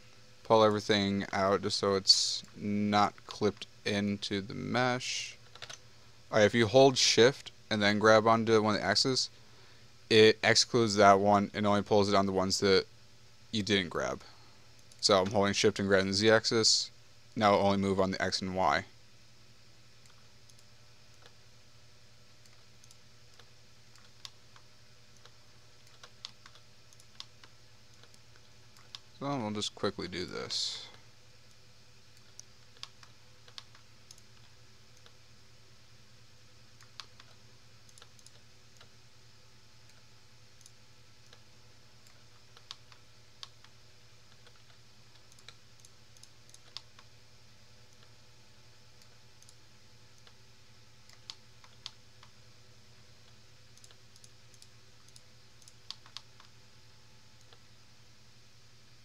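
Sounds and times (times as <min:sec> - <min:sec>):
faint low hum: 0:00.0 - 0:59.0
mouse and keyboard clicks: 0:05.5 - 0:05.8, 0:32.2 - 0:35.2, 0:44.3 - 0:47.1, 0:53.2 - 0:56.5.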